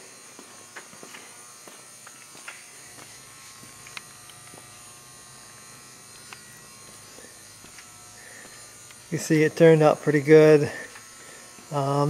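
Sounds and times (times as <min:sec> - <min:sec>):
faint buzzing hum: 0:00.0 - 0:12.0.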